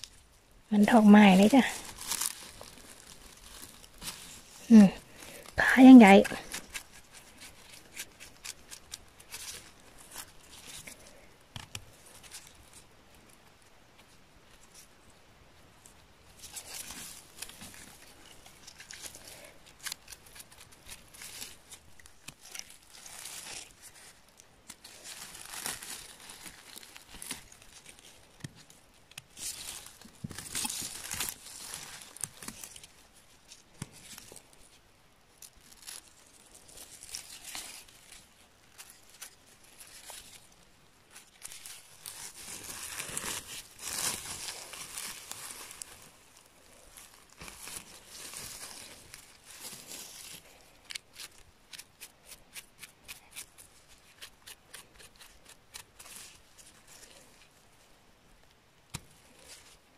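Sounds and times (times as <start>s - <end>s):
bristle brush scratching mushrooms: 0.0s - 11.1s
rustling and snapping of dry grass: 0.0s - 15.2s, 15.8s - 57.8s, 58.4s - 59.9s.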